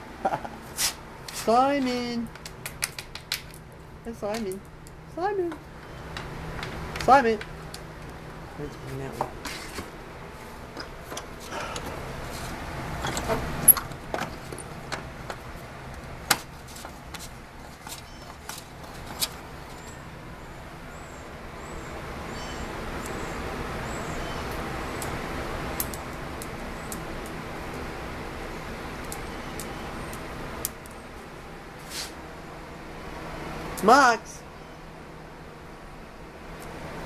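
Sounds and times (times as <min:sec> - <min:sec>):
handling clicks and knocks: 0:05.5 - 0:07.9, 0:10.7 - 0:12.0, 0:13.0 - 0:20.0.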